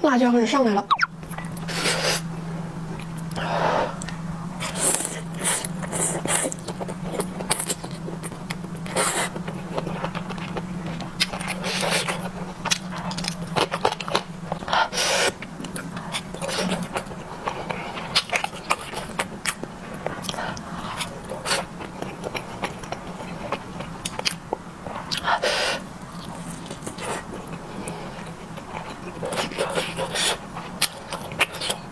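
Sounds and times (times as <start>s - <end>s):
wet chewing clicks and smacks: 0.9s - 1.6s, 26.0s - 31.8s.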